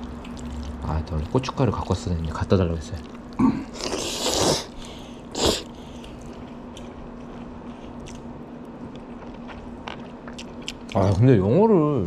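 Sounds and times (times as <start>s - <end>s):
chewing with wet clicks: 0.0s - 4.0s, 5.6s - 11.4s
slurping noodles: 3.6s - 5.7s.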